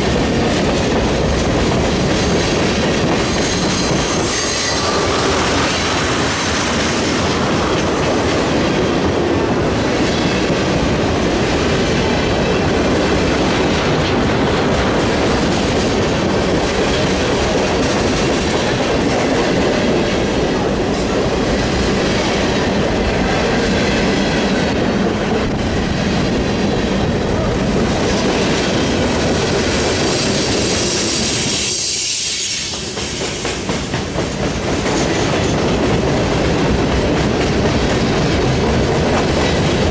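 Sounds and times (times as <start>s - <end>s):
freight train wheels clattering: 0.0s - 39.9s
wheel squeal: 3.4s - 5.2s.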